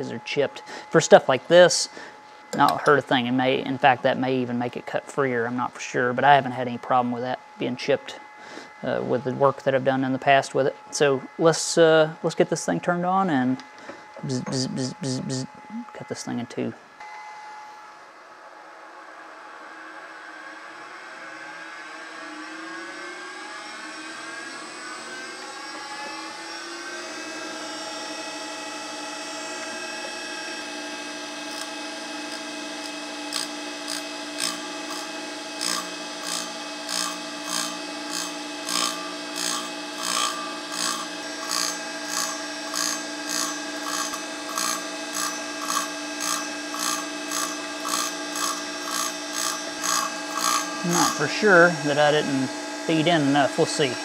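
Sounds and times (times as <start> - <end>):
grinder motor whine: 13.1 - 54.0
diamond wheel grinding stone: 31.4 - 54.0.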